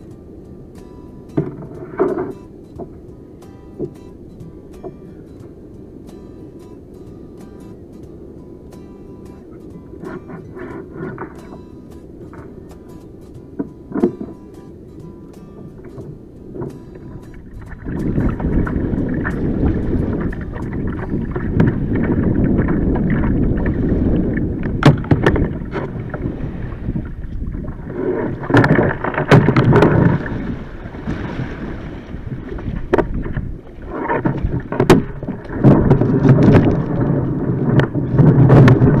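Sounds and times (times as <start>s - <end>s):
water lapping around kayak: 0.0s - 39.0s
hull knocks and clunks: 1.4s - 3.0s, 15.8s - 26.3s, 27.0s - 31.6s, 32.4s - 39.0s.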